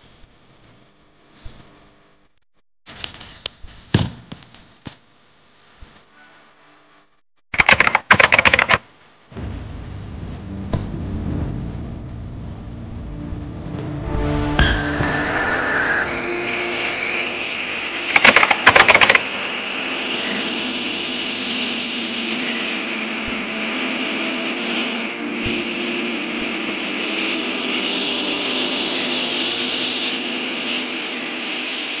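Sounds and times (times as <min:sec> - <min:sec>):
rocket burner hissing: 0:09.3 - 0:13.5, 0:14.2 - 0:32.0.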